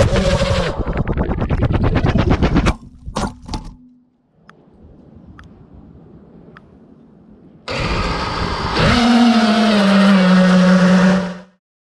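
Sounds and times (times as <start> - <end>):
quadcopter motors buzzing: 7.7 - 11.6.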